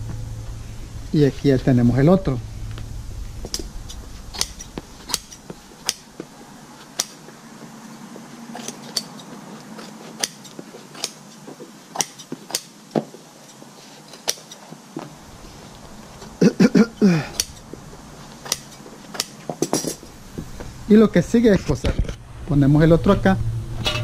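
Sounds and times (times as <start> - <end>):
scissors snipping fabric: 8.6 - 11.3, 18.4 - 19.4.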